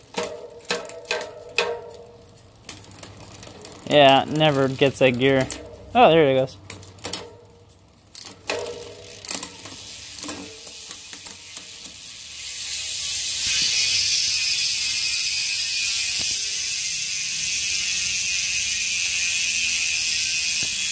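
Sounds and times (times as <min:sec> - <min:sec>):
bicycle chain clicks: 0:00.0 - 0:20.9
freewheel hub buzzing: 0:00.0 - 0:20.9.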